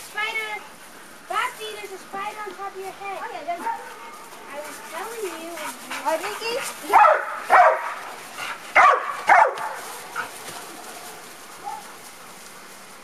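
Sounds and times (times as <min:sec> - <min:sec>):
dog barking: 0:03.6 - 0:04.2, 0:06.9 - 0:08.1, 0:08.8 - 0:09.9, 0:11.6 - 0:11.9.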